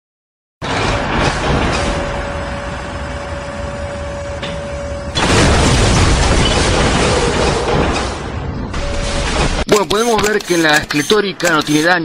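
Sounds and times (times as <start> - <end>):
cars being crushed: 0.6 - 3.0, 5.2 - 11.8
mechanical rumble: 0.6 - 9.7.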